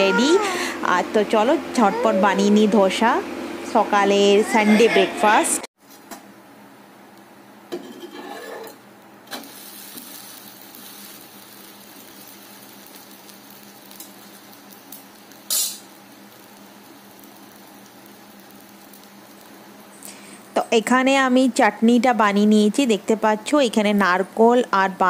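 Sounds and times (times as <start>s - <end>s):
batter sizzling on griddle: 7.7s - 20.6s.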